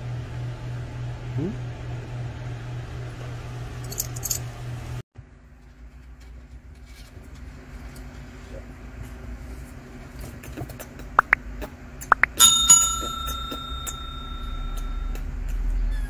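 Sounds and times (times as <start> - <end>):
bright bell ding: 12.2 - 15.2.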